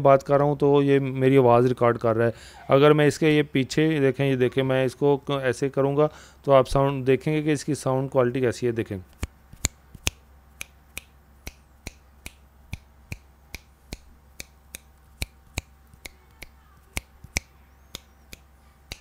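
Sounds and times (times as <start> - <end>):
fingers snapping: 9.1 - 19.0.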